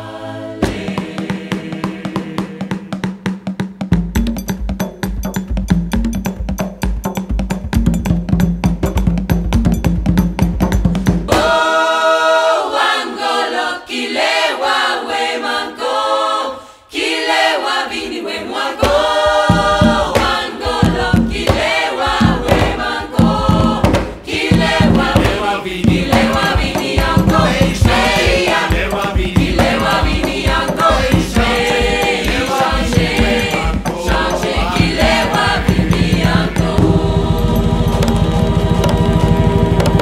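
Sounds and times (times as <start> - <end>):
choir singing: 0.0 - 3.1, 11.3 - 40.0
drums on a steady beat: 0.6 - 11.7, 18.8 - 40.0.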